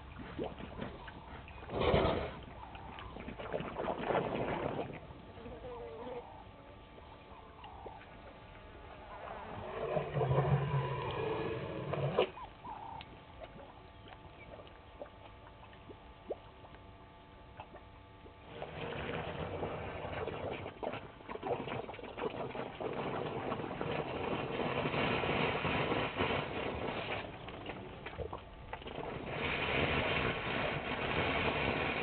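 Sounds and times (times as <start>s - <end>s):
elephant drawing water with trunk: 0.0s - 5.0s, 9.4s - 12.4s, 18.4s - 32.0s.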